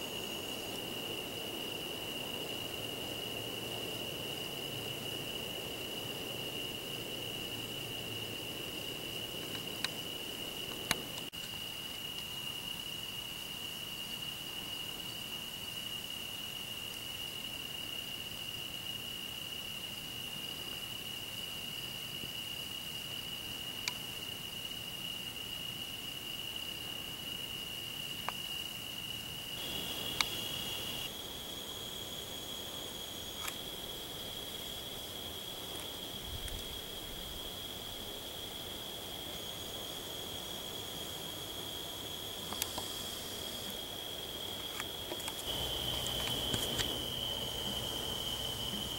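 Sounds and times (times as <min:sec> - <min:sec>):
crickets trilling: 0:00.0 - 0:48.9
faint clicks: 0:30.1 - 0:31.0, 0:42.5 - 0:42.9.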